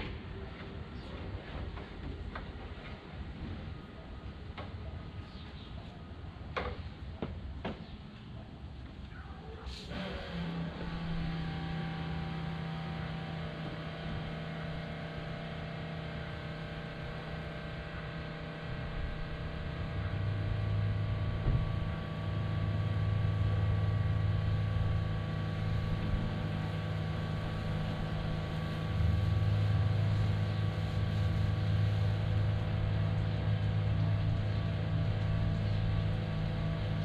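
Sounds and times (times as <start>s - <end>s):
motor running drone: 9.7s - 37.0s.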